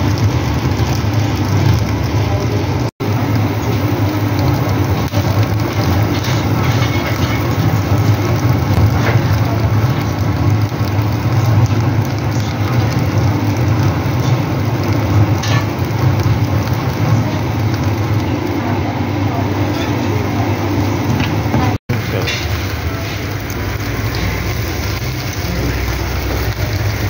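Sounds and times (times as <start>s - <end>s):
fan-blown charcoal grill roaring: 0.0s - 27.0s
fire crackling: 0.0s - 27.0s.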